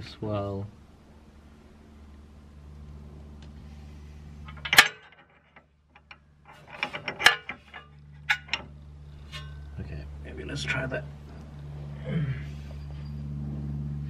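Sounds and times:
metal clinks and knocks: 4.4 - 9.8.

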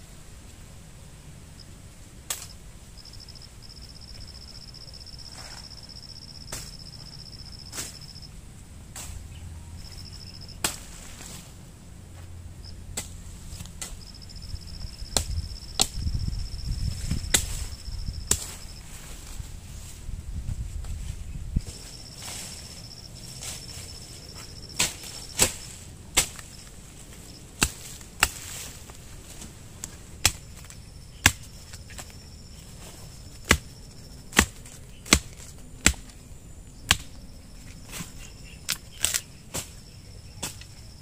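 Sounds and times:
insect trilling: 3.0 - 8.3, 14.0 - 18.9.

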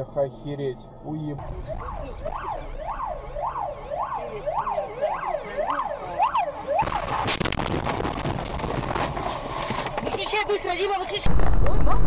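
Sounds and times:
ambulance siren wailing: 1.0 - 7.4
vehicle collision crunch: 6.8 - 12.0.

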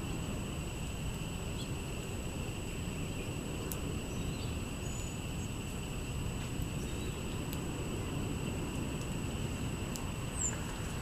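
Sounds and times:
constant high hum: 0.0 - 11.0
songbird chirps: 1.5 - 1.9, 2.5 - 5.6, 6.4 - 7.6, 9.2 - 11.0.

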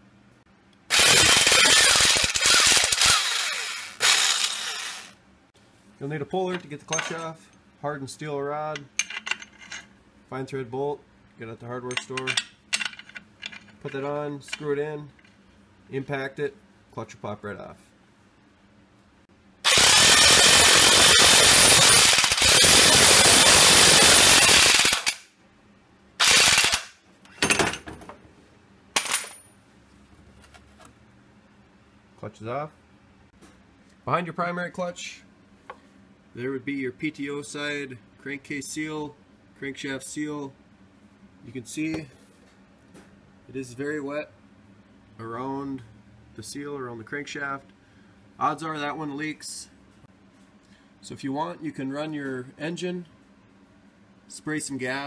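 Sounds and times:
impact wrench hammering: 0.9 - 5.1.

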